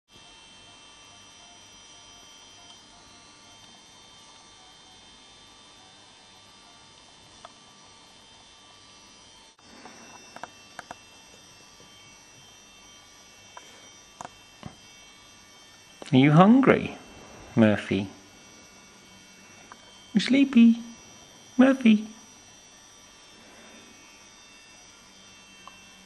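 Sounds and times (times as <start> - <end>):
steady electrical hum: 0.1 - 26.0
high whining tones: 8.9 - 26.0.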